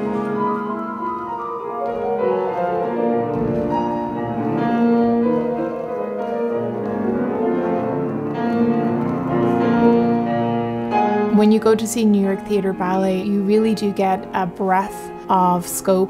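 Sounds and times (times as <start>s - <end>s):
classical piano music: 0.0s - 16.0s.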